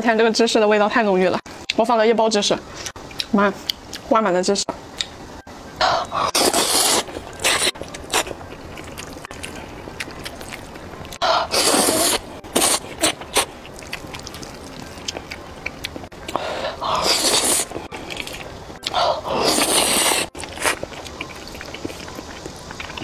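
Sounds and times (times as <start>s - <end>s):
person slurping noodles: 5.8s - 8.3s, 11.2s - 14.6s, 16.3s - 20.8s
wet chewing clicks: 5.8s - 23.0s.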